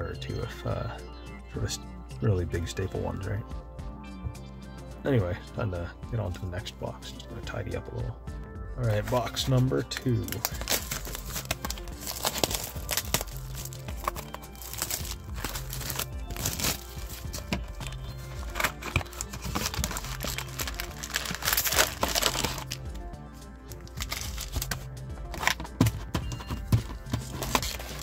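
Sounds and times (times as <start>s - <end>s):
background music with bass line: 0.0s - 28.0s
plastic wrapping crinkling: 10.2s - 22.8s, 23.8s - 28.0s.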